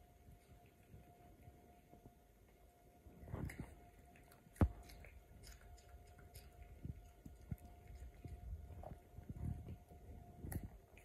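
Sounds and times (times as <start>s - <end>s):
dog crunching carrot: 3.2s - 11.0s.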